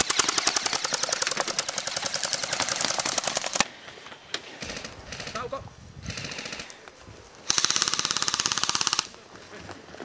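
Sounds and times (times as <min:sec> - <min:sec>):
airsoft gun firing full auto: 0:00.0 - 0:03.6, 0:07.5 - 0:09.1.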